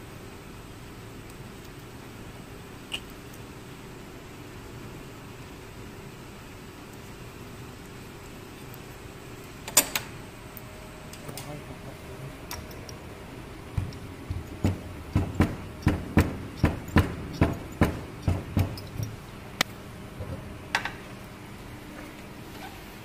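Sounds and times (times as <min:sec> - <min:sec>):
hand roller thumping and clicking: 0:13.7 - 0:19.2.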